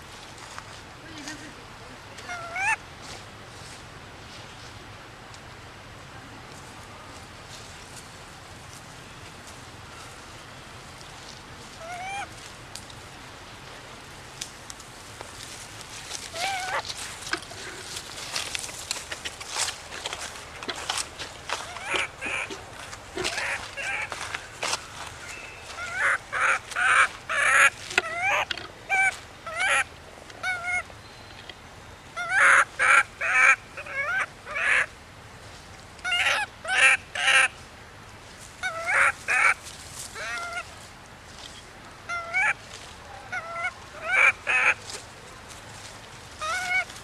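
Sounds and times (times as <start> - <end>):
baby monkey crying: 2.3 - 2.8, 11.8 - 12.3, 16.3 - 16.8, 21.6 - 22.6, 23.2 - 24.2, 25.7 - 30.9, 32.2 - 34.9, 36.0 - 37.5, 38.6 - 39.6, 40.2 - 40.7, 42.1 - 42.6, 43.3 - 44.8, 46.4 - 46.9.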